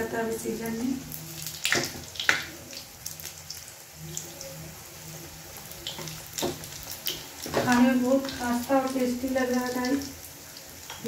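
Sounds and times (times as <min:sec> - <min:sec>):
dough sizzling in hot oil: 0:00.0 - 0:11.0.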